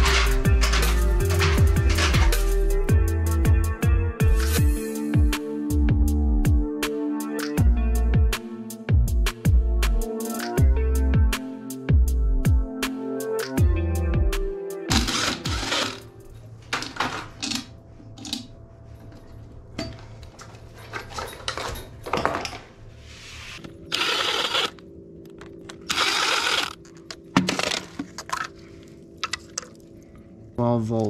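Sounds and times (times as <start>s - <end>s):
clicks and handling noise: 0.0s - 2.6s, 14.9s - 22.7s, 23.6s - 29.8s
background music: 0.0s - 31.0s
cordless drill driving screws: 23.9s - 24.8s, 25.9s - 26.8s.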